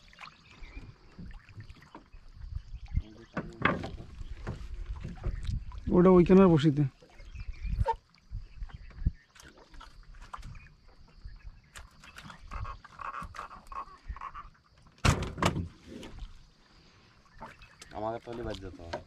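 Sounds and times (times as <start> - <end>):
small knocks on wooden boat: 3.3 - 5.6.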